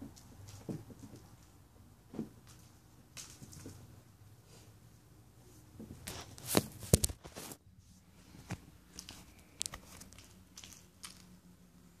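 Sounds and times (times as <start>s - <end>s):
kitten playing with string toy: 0.0s - 1.6s, 8.4s - 11.8s.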